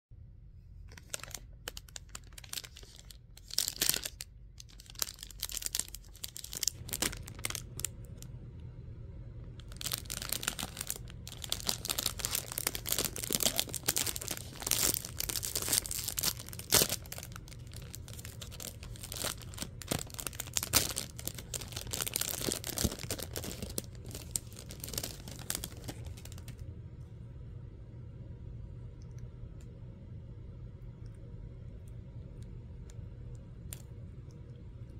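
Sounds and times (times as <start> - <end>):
plastic wrapper crinkling: 0.8 - 8.3, 9.5 - 26.6.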